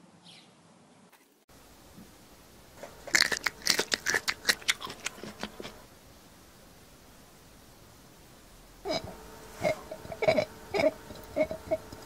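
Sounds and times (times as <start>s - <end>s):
sharp crackling crunches: 2.7s - 5.9s.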